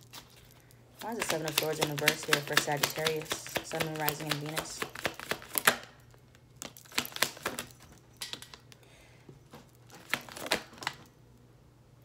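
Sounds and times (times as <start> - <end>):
cards being shuffled: 0.0 - 6.0, 6.6 - 8.7, 9.5 - 11.1.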